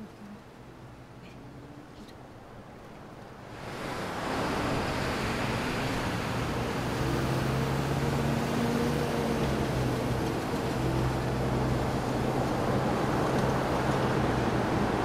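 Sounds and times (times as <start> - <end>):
road traffic: 0.0 - 15.0.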